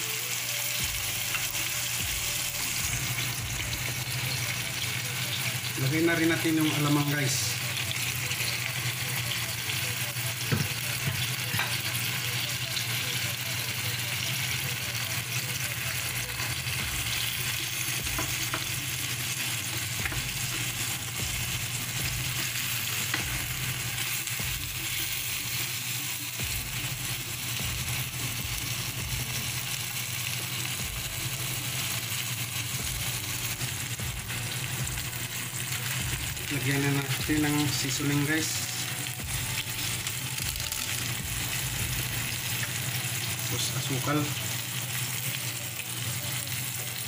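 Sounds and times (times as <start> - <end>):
food sizzling in a frying pan: 0.0 - 47.0.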